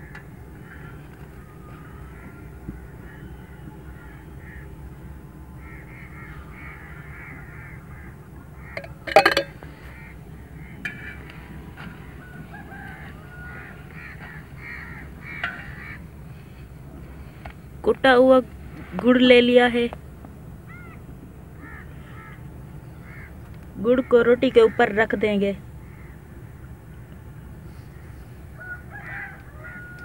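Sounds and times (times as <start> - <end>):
birds calling: 0.0 - 30.0
spoon clattering on metal plate: 8.8 - 9.6.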